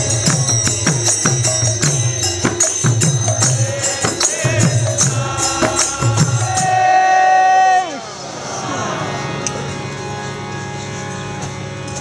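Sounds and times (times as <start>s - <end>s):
hand cymbals jingling: 0.0s - 6.8s
drum beating: 0.0s - 7.1s
chanted singing: 0.0s - 10.4s
harmonium: 0.0s - 12.0s.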